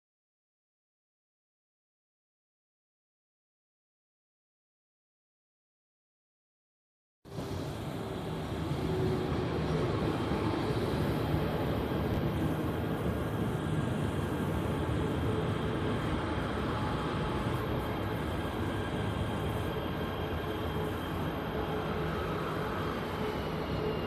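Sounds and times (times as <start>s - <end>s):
faint train whine: 7.3s - 24.0s
train wheels rumbling on rails: 7.3s - 24.0s.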